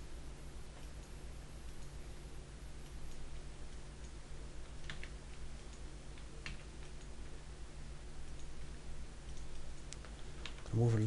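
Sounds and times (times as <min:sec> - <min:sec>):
low room hum: 0:00.0 - 0:11.0
computer mouse clicks: 0:02.8 - 0:07.2, 0:09.2 - 0:10.7.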